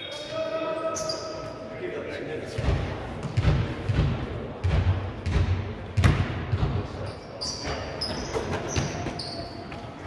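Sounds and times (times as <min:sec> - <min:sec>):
sneakers squeaking: 0:00.9 - 0:01.6, 0:06.0 - 0:10.0
basketball bouncing on wooden floor: 0:02.6 - 0:06.9.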